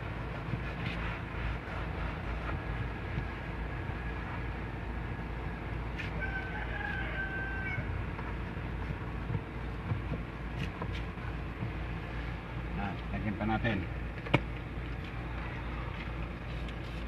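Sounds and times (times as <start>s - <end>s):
steady low hum: 0.0s - 17.0s
rooster crowing: 6.1s - 8.0s.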